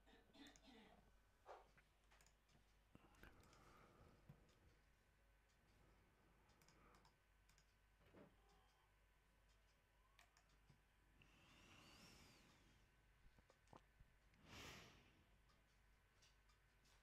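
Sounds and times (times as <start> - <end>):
faint computer mouse clicks: 1.7 - 3.8, 6.4 - 7.8, 9.4 - 10.8.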